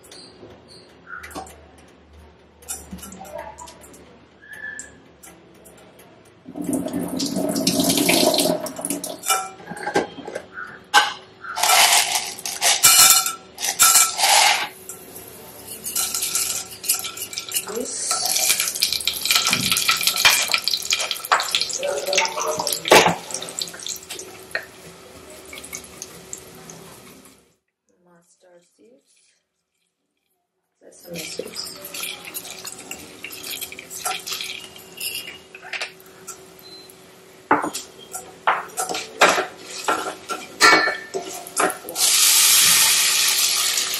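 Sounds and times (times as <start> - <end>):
hot oil sizzling: 7.2 - 9.5, 11.6 - 27.5, 31.1 - 43.9.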